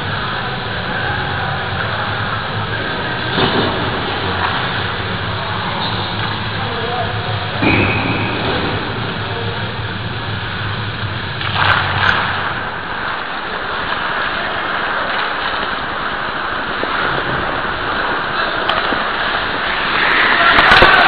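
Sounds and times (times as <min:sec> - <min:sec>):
ice hockey rushing noise: 0:00.0 - 0:21.0
sharp knocks: 0:07.6 - 0:09.3.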